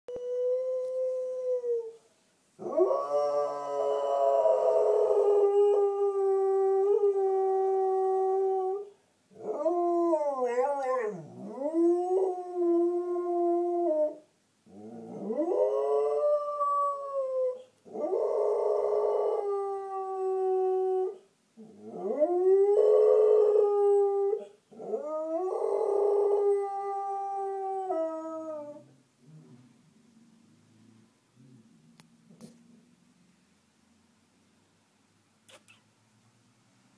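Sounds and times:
dog howling: 0:09.4 - 0:14.2.

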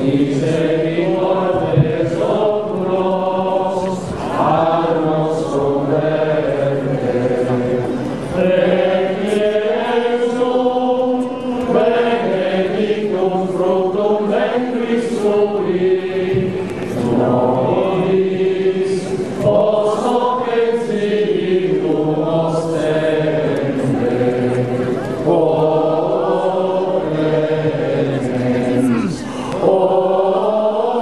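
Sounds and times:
group singing a hymn: 0:00.0 - 0:31.0.

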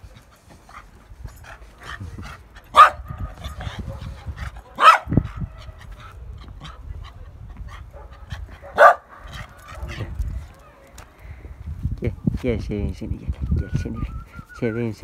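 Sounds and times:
dog barking: 0:02.7 - 0:03.1, 0:03.7 - 0:05.2, 0:07.9 - 0:09.9.

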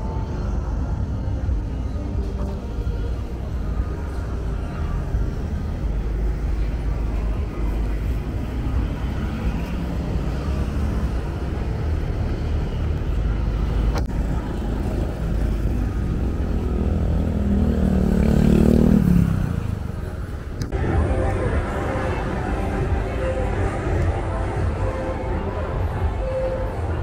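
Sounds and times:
passing vehicle engine: 0:00.0 - 0:27.0
street traffic rumbling: 0:00.0 - 0:27.0.

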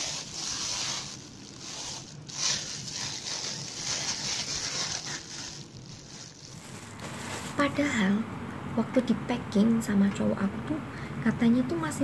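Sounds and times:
plastic bag rustling: 0:00.0 - 0:07.9.

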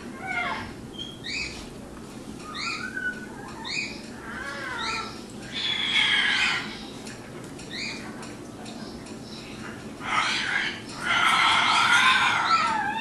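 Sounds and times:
raccoon chirping and squealing: 0:00.1 - 0:01.6, 0:02.4 - 0:06.9, 0:07.7 - 0:08.0, 0:10.0 - 0:13.0.

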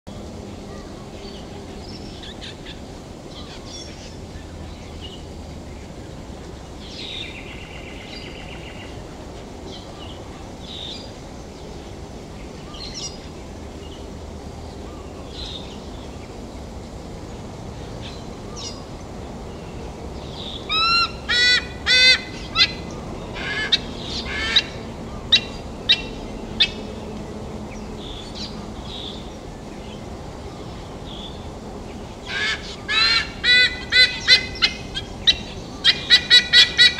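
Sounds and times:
eagle honking calls: 0:20.7 - 0:26.8, 0:32.2 - 0:36.9.

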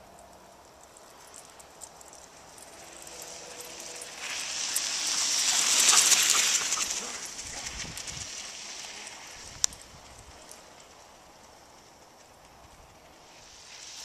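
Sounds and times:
bicycle tyres crunching on snow: 0:00.8 - 0:14.0.

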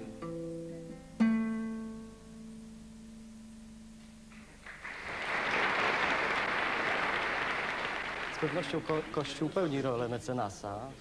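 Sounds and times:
guitar chord ringing: 0:00.0 - 0:04.0
audience applause: 0:04.5 - 0:09.7.

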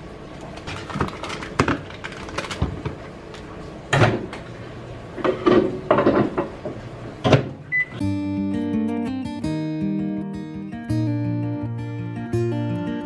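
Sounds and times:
butter wrapper rustling: 0:00.4 - 0:02.9.

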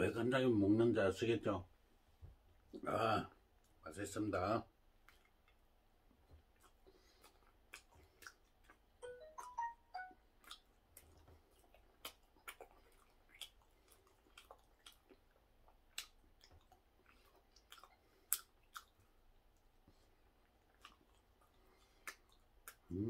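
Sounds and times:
person chewing with wet smacks: 0:04.8 - 0:23.0.

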